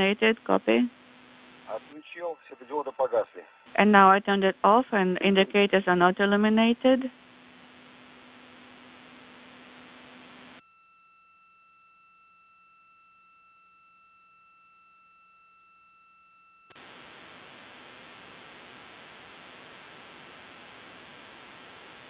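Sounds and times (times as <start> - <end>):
radio channel hiss: 1.5 - 7.1
faint steady high tone: 1.7 - 3.9, 10.6 - 16.7.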